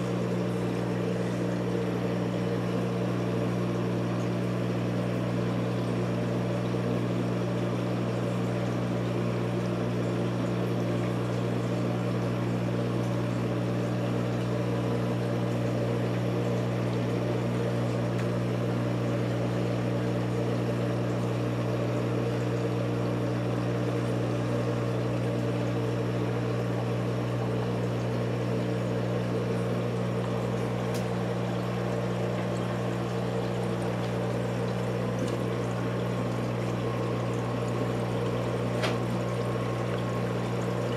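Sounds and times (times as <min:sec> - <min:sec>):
aquarium pump hum: 0:00.0 - 0:40.9
water flowing: 0:12.3 - 0:40.9.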